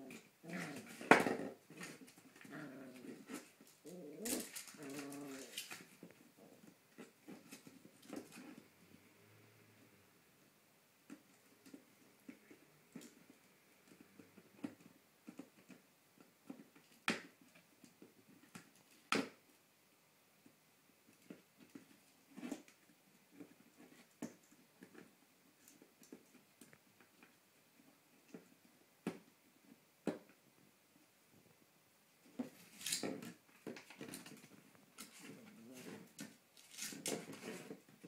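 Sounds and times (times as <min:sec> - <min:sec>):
puppy chewing a toy: 0:00.0 - 0:08.7.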